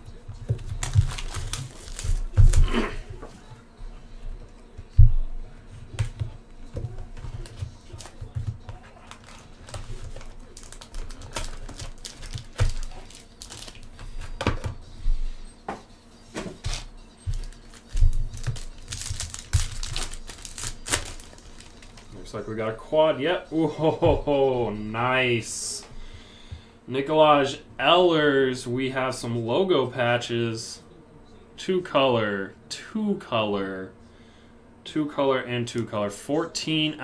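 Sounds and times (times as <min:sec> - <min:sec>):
card packs clicking and rustling: 0:00.4 - 0:03.0, 0:07.4 - 0:14.8, 0:16.7 - 0:22.2.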